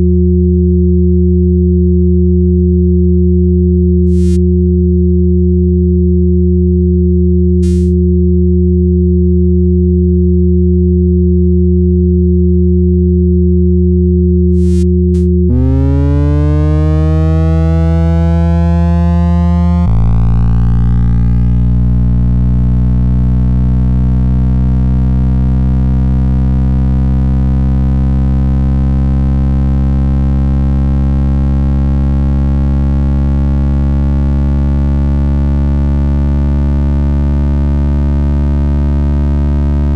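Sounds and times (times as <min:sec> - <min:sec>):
click: 0:04.1 - 0:07.9, 0:14.6 - 0:15.3
thin high whistle: 0:04.1 - 0:07.9
low pure sine tones: 0:04.1 - 0:08.0, 0:14.6 - 0:29.3.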